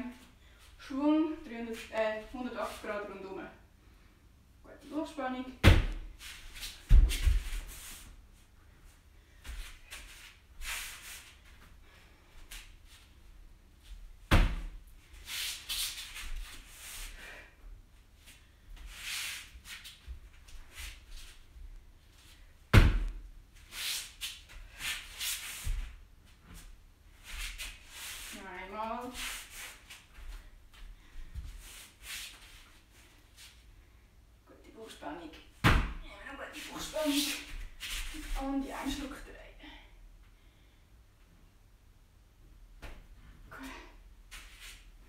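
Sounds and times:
body thumping on exercise mat: 0:05.6 - 0:06.1, 0:06.8 - 0:07.6, 0:14.3 - 0:14.8, 0:22.7 - 0:23.2, 0:35.6 - 0:36.0
heavy thump on mat: 0:05.6 - 0:06.1, 0:22.7 - 0:23.1, 0:35.6 - 0:36.0
feet scuffing and pivoting: 0:05.7 - 0:08.1.

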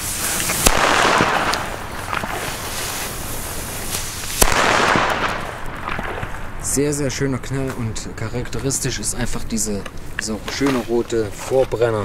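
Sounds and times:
firecracker fuse hissing: 0:00.0 - 0:06.6
firecracker bang: 0:00.0 - 0:07.0.

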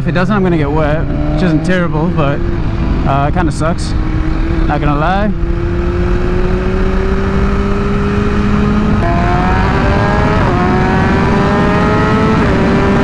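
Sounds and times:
motorcycle engine accelerating: 0:00.0 - 0:13.0
wind rushing over microphone: 0:00.0 - 0:13.0.

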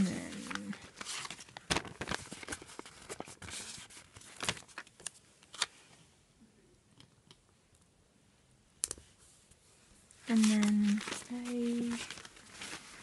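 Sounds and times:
paper stickers rustling: 0:00.0 - 0:05.7, 0:10.2 - 0:13.0.

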